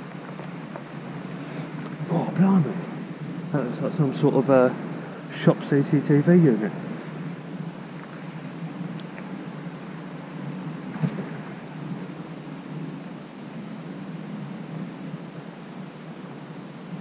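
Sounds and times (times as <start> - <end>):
low outdoor rumble: 0.0 - 17.0
small bird chirping: 9.6 - 10.1, 10.7 - 11.8, 12.4 - 12.8, 13.6 - 14.0, 15.0 - 15.5.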